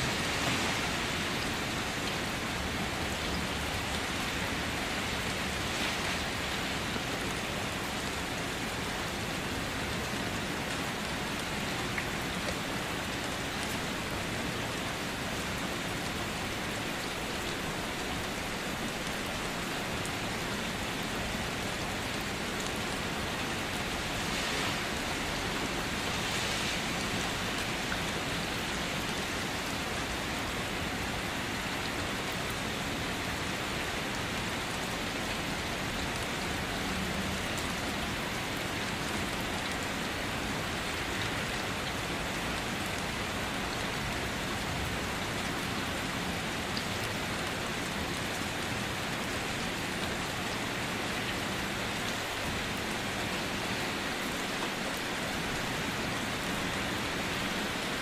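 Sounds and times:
steady rain hissing: 0.0 - 58.0.

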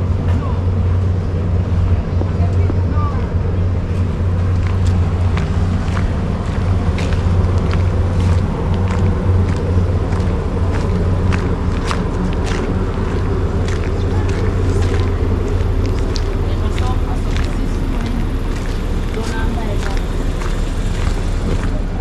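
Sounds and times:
steady low rumble: 0.0 - 22.0
footsteps walking: 3.8 - 22.0.

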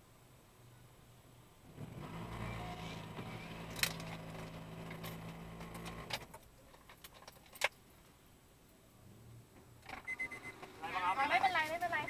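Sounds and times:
clicks and rattles: 3.6 - 7.8.

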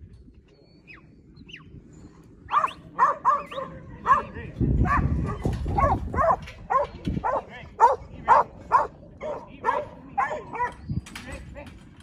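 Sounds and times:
dog barking: 2.5 - 10.8.

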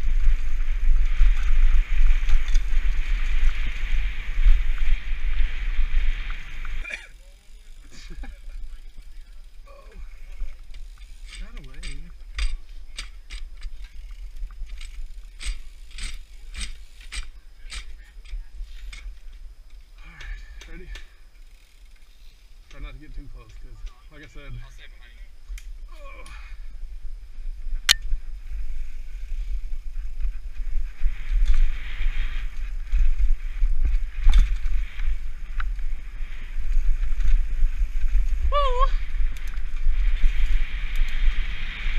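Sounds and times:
wind rumble on microphone: 0.0 - 6.9, 26.5 - 41.9
bike clacking over bumps: 10.4 - 19.3.

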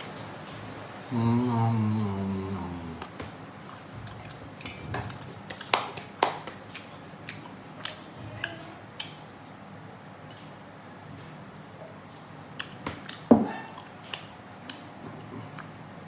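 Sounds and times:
wet chewing with mouth clicks: 1.4 - 9.6, 12.1 - 15.8
hands clapping: 5.5 - 6.9.

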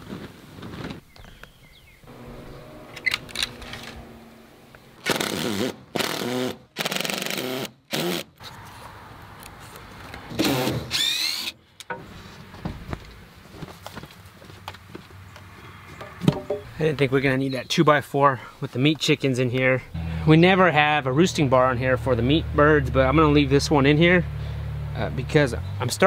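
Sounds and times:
cordless drill whining: 10.4 - 11.5.

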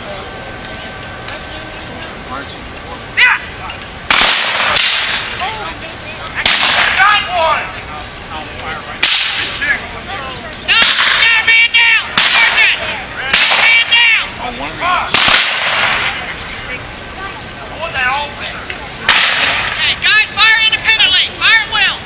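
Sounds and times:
musket shots echoing: 4.1 - 5.4, 6.4 - 7.0, 9.0 - 9.6, 10.8 - 11.2, 12.1 - 13.9, 15.1 - 16.2, 19.1 - 19.8.

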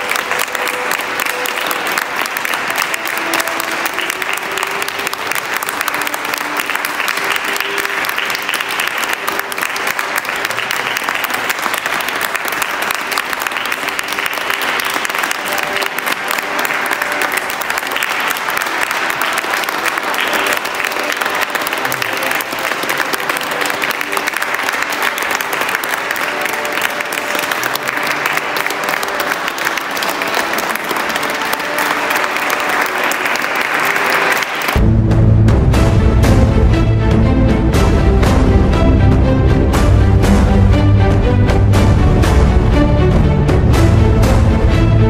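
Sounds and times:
audience applause: 0.0 - 34.9.

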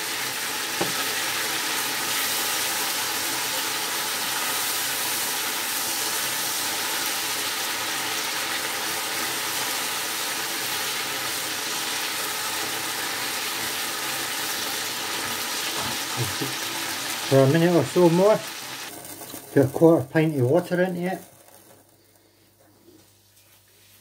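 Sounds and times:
meat sizzling in a frying pan: 0.0 - 21.7.

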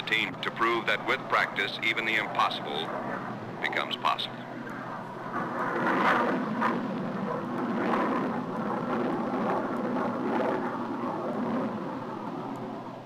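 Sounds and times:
jet aircraft passing overhead: 0.0 - 13.0
steady low hum: 0.0 - 13.0.

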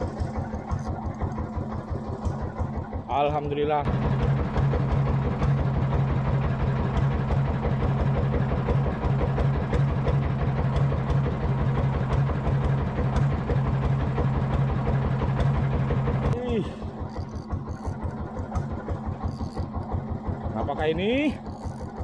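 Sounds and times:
boat engine running: 0.0 - 22.0.

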